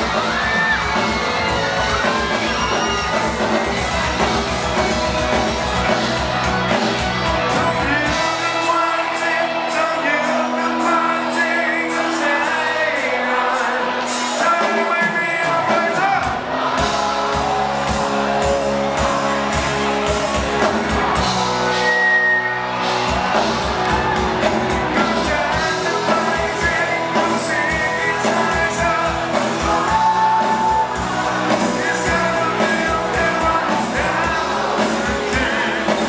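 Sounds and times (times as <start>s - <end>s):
live rock band: 0.0s - 36.0s
man singing: 7.3s - 17.6s, 24.7s - 36.0s.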